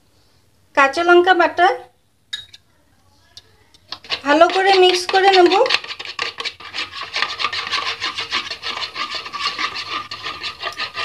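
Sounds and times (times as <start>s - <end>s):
spoon beating eggs in bowl: 3.8s - 11.0s.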